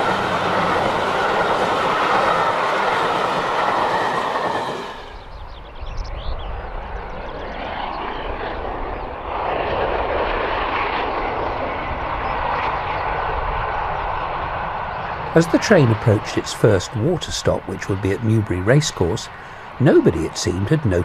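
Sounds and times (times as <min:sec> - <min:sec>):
steam train running: 0:00.0 - 0:05.4, 0:15.3 - 0:21.0.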